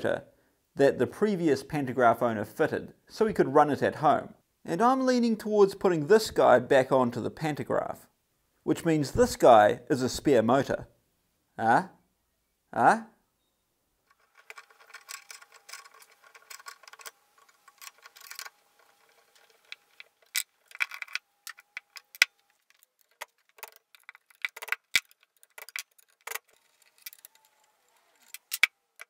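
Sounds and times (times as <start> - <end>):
metal puller clicks and clinks: 14.1 - 29.0.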